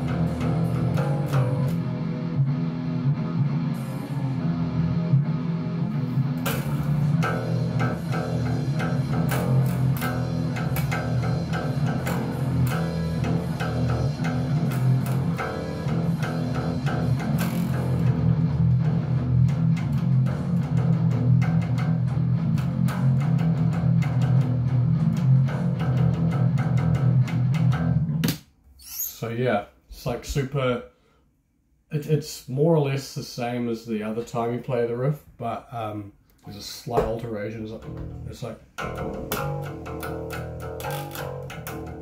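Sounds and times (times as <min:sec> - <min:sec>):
rock band playing: 0:00.0 - 0:28.1, 0:37.9 - 0:42.0
electric bass guitar riff: 0:00.0 - 0:28.4, 0:35.4 - 0:42.0.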